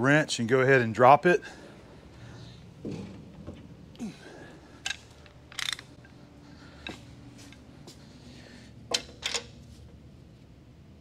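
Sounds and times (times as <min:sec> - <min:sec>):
low steady hum: 0:00.0 - 0:11.0
wrench clicking on metal: 0:04.8 - 0:05.9.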